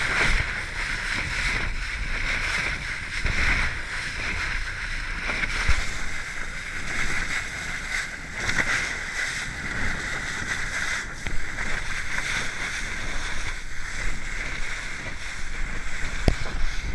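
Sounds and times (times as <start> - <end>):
water rushing along boat hull: 0.0 - 16.9
wind buffeting microphone: 0.0 - 16.9.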